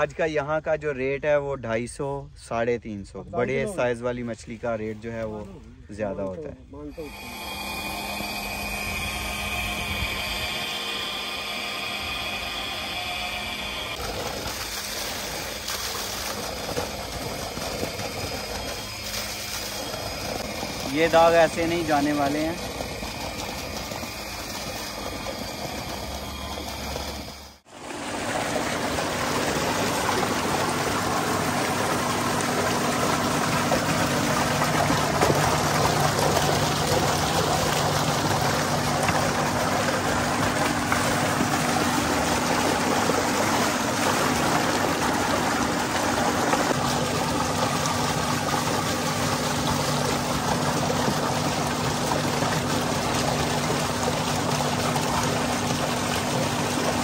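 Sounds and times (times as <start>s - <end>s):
low steady hum: 0.0s - 57.0s
water gushing into concrete tank: 6.9s - 57.0s
water spilling from pipe onto grass: 13.9s - 57.0s.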